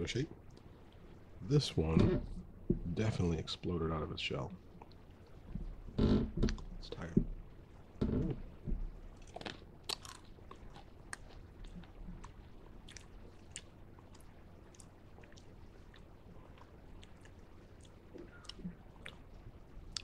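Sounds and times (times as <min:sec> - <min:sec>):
person chewing crunchy candy: 0:09.2 - 0:19.2.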